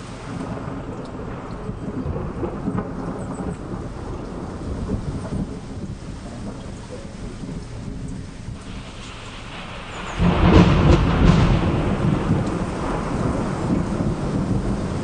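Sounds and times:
loud low rumble: 0:03.6 - 0:15.0.

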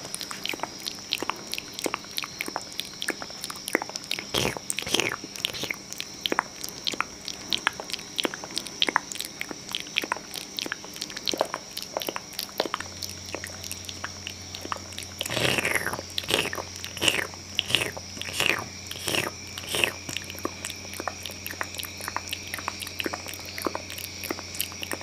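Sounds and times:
wet mouth clicks and smacks: 0:00.0 - 0:25.0
squelching mouth sweeps: 0:04.3 - 0:05.8, 0:15.2 - 0:20.3.

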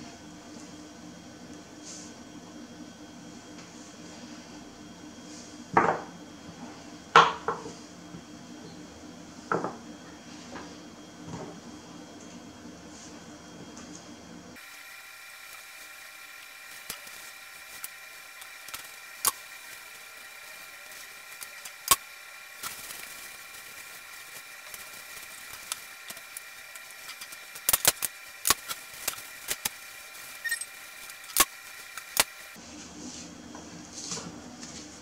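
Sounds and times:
faint high whine: 0:14.6 - 0:32.6.

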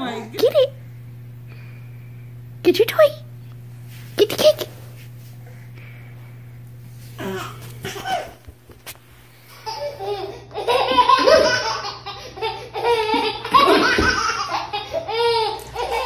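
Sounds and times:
baby laughing: 0:07.2 - 0:08.4, 0:09.5 - 0:16.0.

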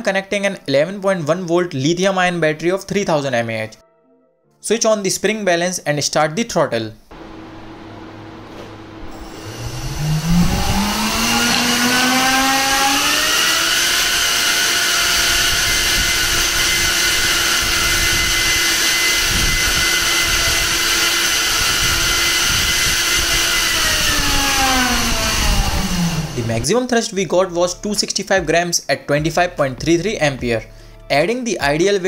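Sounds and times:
electric ducted fan whine: 0:07.1 - 0:26.8.

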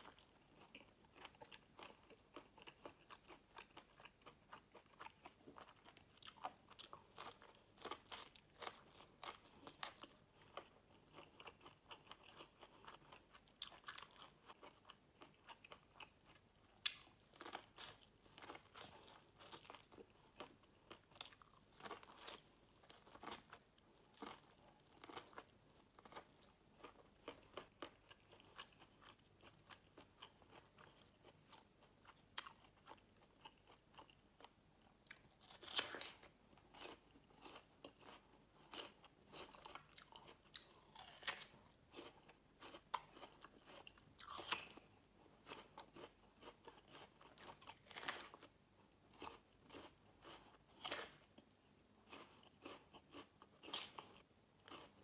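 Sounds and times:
chewing corn crunches: 0:00.0 - 0:55.0.

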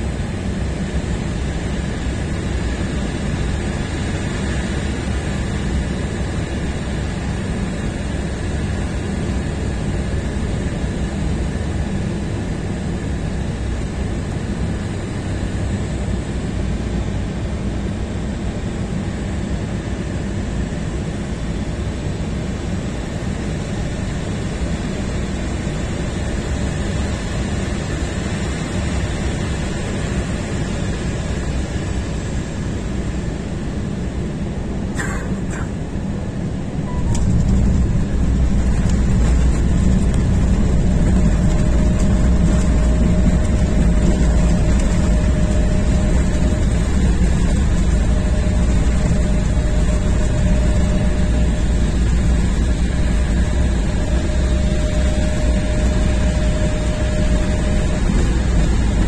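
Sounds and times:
deep rumble of plane rolling: 0:00.0 - 0:59.0
steady whine: 0:22.0 - 0:59.0.

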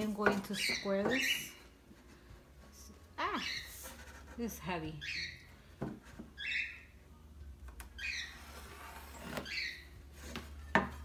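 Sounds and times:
pencil scratching on plywood: 0:01.9 - 0:04.8.

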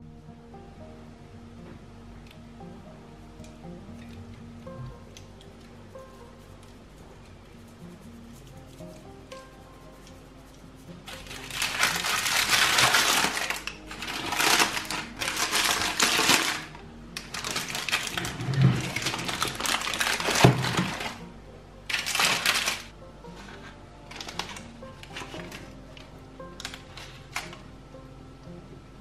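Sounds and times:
soft background music: 0:00.0 - 0:29.0
parchment paper crinkling: 0:08.2 - 0:21.2, 0:21.9 - 0:22.9.

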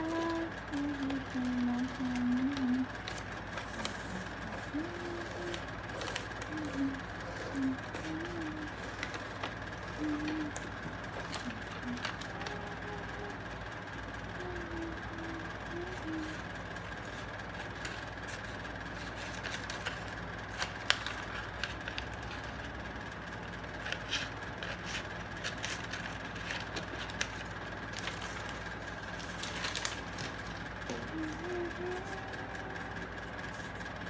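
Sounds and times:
paper crinkling: 0:00.0 - 0:12.9, 0:15.8 - 0:22.6, 0:23.7 - 0:34.0
steady background hum: 0:00.0 - 0:34.0
scissors snipping paper: 0:23.7 - 0:31.4.

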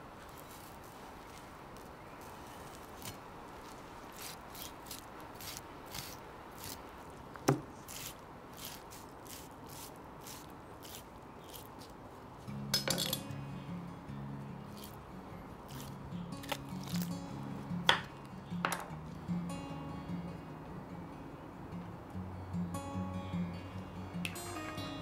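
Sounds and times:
knife slicing pork skin: 0:02.2 - 0:06.9, 0:07.5 - 0:11.9, 0:15.7 - 0:17.1
music: 0:12.5 - 0:25.0.

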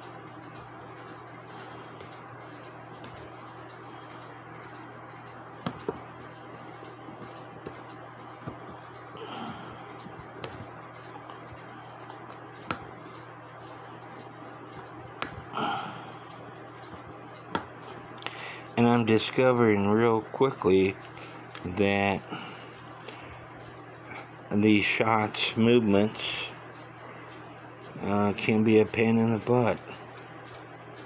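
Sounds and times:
steady low hum: 0:00.0 - 0:31.0
metal clock parts clicking: 0:29.0 - 0:30.6.

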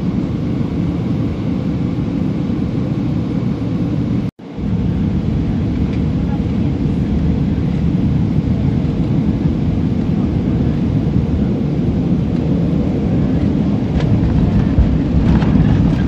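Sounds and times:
jet engine noise: 0:00.0 - 0:16.0
wheels rumbling on runway: 0:04.5 - 0:16.0.

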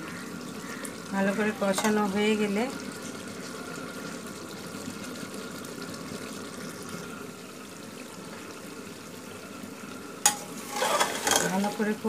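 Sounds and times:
curry simmering and bubbling: 0:00.0 - 0:12.0.

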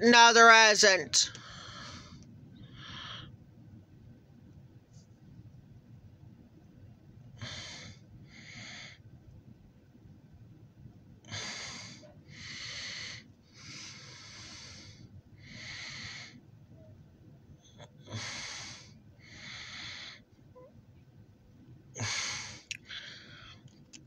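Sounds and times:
person breathing noisily: 0:11.3 - 0:16.4, 0:18.0 - 0:20.3, 0:22.0 - 0:23.7.

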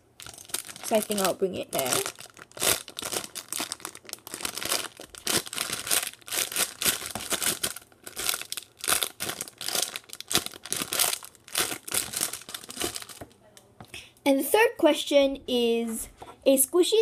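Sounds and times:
plastic bag crinkling: 0:00.2 - 0:13.4.

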